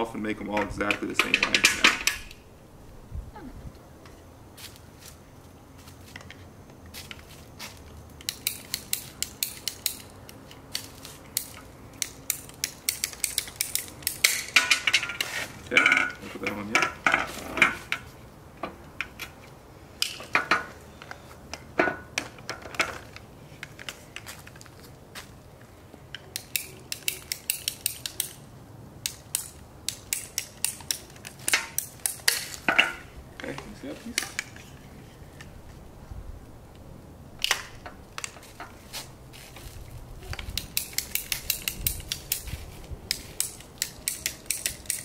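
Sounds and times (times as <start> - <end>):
ratcheting pipe cutter clicks: 8.2 - 10.1, 11.4 - 15.1, 26.1 - 28.4, 29.0 - 32.5, 40.4 - 42.5, 43.1 - 45.0
pipe cutter ratchet clicking: 43.4 - 45.0.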